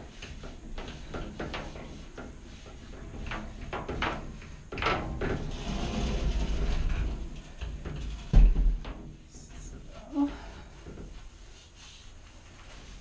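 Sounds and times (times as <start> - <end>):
cloth rubbing on glass: 9.4 - 13.0.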